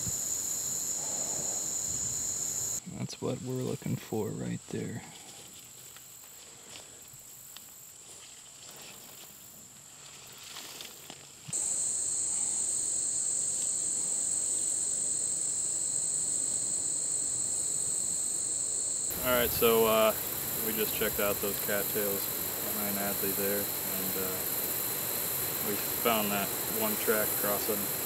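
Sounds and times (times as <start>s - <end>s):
insect chorus buzzing: 0.0s - 2.8s, 5.1s - 28.0s
lower insect buzz: 0.0s - 2.8s, 11.5s - 28.0s.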